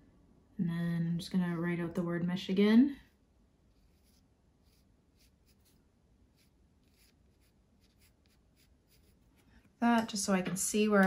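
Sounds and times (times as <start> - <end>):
pencil scratching on paper: 3.7 - 9.7.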